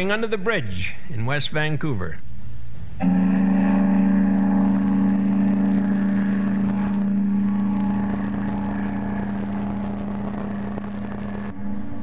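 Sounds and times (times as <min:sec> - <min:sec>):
ship whistle blast: 0:03.0 - 0:12.0.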